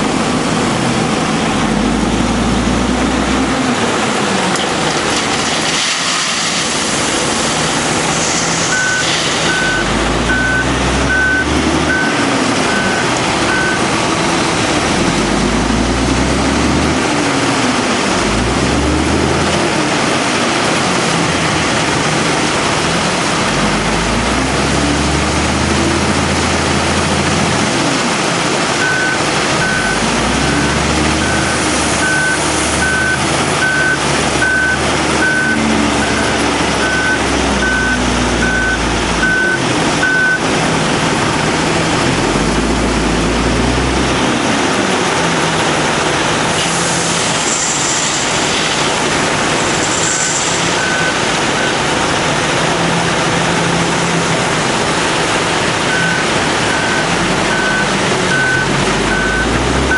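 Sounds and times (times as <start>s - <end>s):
diesel engine revving: 0.0s - 59.9s
reversing alarm beeping: 8.6s - 13.9s, 28.8s - 40.4s, 50.8s - 51.8s, 55.9s - 59.9s.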